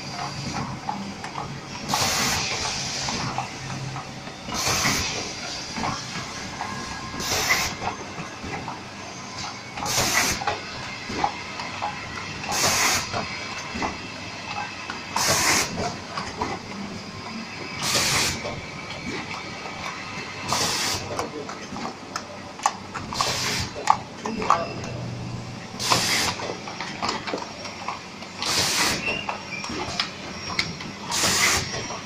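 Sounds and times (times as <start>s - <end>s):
machine running: 0.0s - 32.0s
compressed air hiss: 1.9s - 3.2s, 4.6s - 5.2s, 7.2s - 7.8s, 12.5s - 13.1s, 15.2s - 15.8s, 20.5s - 21.0s, 25.8s - 26.4s, 28.4s - 29.0s, 31.1s - 31.7s.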